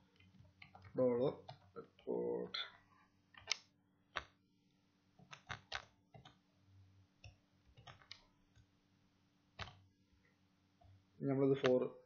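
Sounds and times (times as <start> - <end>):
keyboard keystrokes: 5.2 - 6.4, 7.2 - 8.2.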